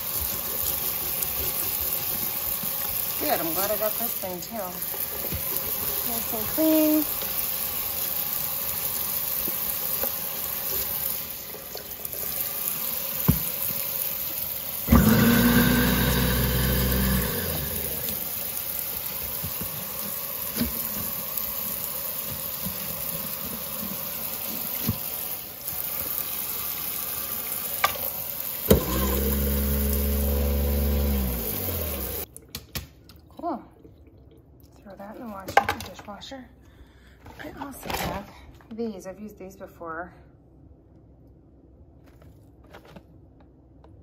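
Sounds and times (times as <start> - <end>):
tap water spraying into sink: 0.0 - 32.9
garbage disposal humming: 0.0 - 37.2.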